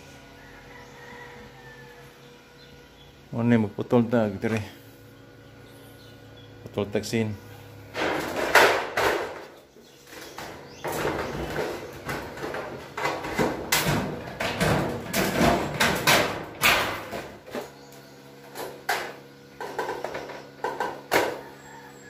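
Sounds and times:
steady low hum: 0.0s - 22.0s
sheet metal rattling and clanking: 10.4s - 17.4s.

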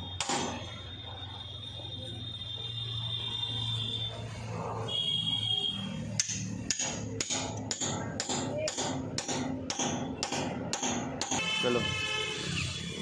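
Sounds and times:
hammer striking steel bolt: 0.2s - 0.6s, 6.2s - 11.4s.

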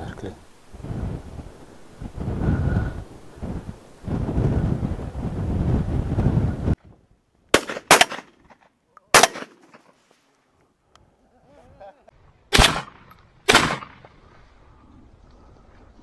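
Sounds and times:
shotgun shots: 7.5s - 8.5s, 9.1s - 9.8s, 12.5s - 14.1s.

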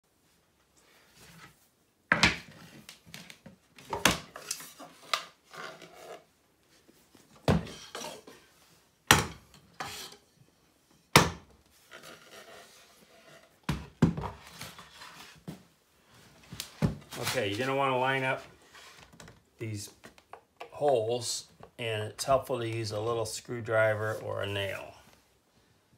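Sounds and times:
wood rubbing and sliding: 11.8s - 13.6s, 14.3s - 15.6s, 16.2s - 19.4s.

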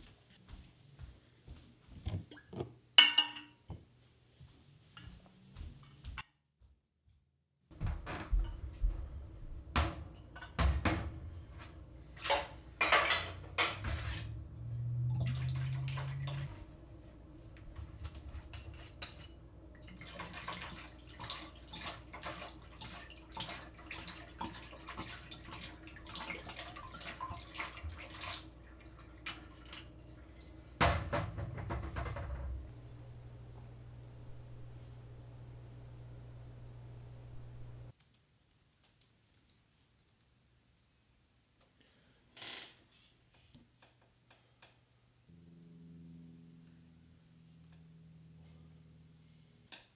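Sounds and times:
bottles and dishes clinking: 3.0s - 3.6s, 12.2s - 14.2s
liquid running: 12.2s - 37.9s.

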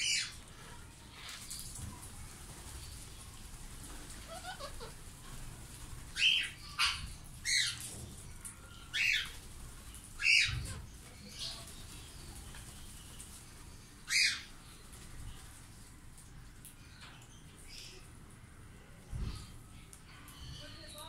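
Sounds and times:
parakeets squawking: 4.2s - 5.0s, 6.2s - 7.8s, 10.2s - 10.9s.

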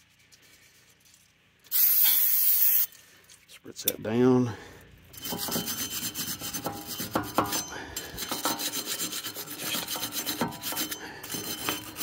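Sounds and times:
wire brush scraping metal: 5.1s - 12.0s.

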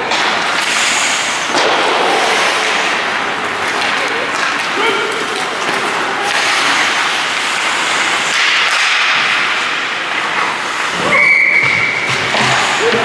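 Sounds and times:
skates scraping ice: 0.0s - 13.0s
person shouting: 4.8s - 5.2s
whistle blast: 11.1s - 12.0s.

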